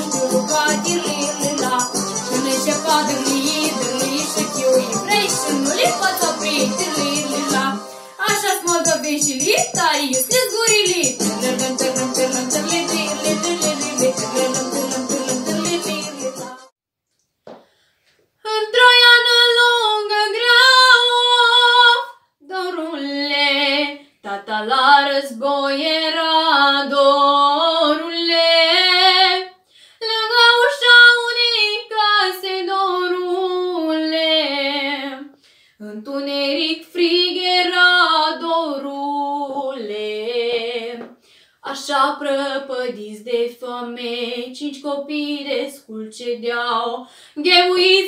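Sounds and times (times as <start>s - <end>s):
girl singing unaccompanied: 0.0s - 16.7s.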